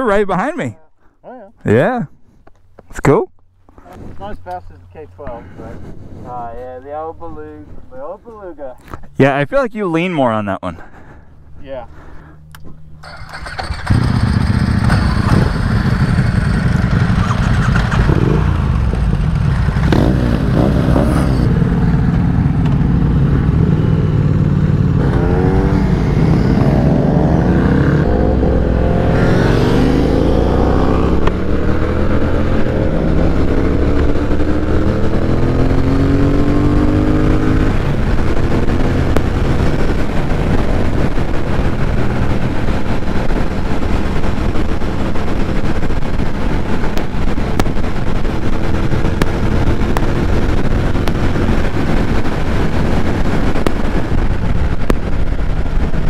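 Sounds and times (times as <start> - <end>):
motorcycle engine accelerating: 12.5 - 56.0
wind rushing: 13.4 - 56.0.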